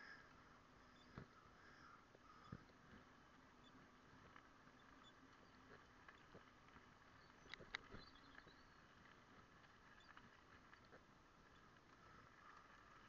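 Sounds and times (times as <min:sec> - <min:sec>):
faint steady hum: 0:00.0 - 0:13.0
small clicks and knocks: 0:01.0 - 0:13.0.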